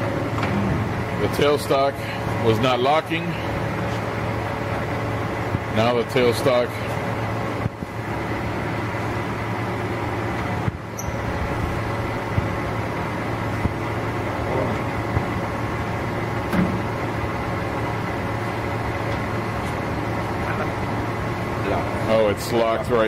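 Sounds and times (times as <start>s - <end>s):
lathe machine hum: 0.0s - 23.0s.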